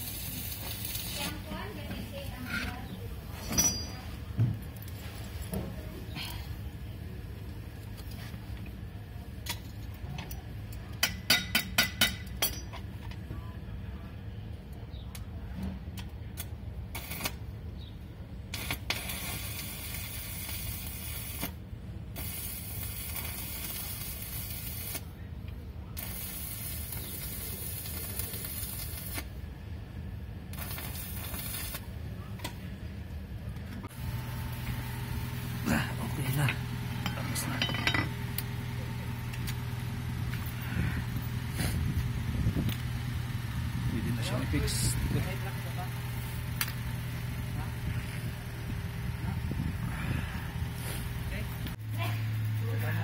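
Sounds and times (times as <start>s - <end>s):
steady hissing: 26.0s - 29.3s
low hum: 29.0s - 53.0s.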